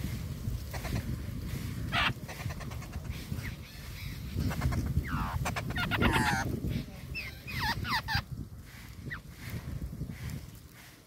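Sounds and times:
wind rumble: 0:00.0 - 0:11.0
nestling birds calling: 0:00.7 - 0:09.5.

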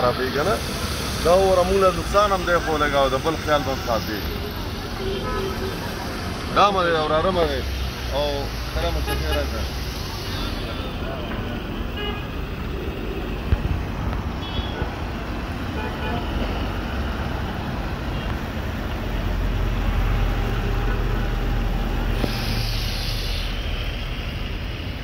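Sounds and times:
strong hiss: 0:00.0 - 0:14.4, 0:21.3 - 0:25.0
road traffic rumbling: 0:00.0 - 0:25.0.

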